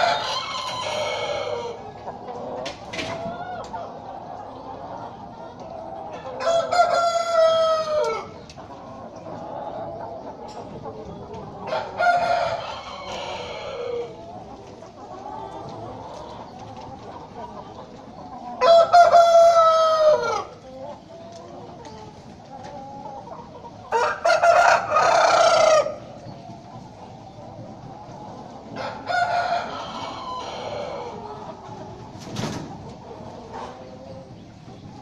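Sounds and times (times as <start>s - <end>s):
roosters crowing: 0.0s - 4.0s, 6.0s - 8.5s, 11.4s - 14.5s, 18.4s - 20.8s, 23.7s - 26.3s, 27.6s - 31.9s
chickens clucking: 0.0s - 35.0s.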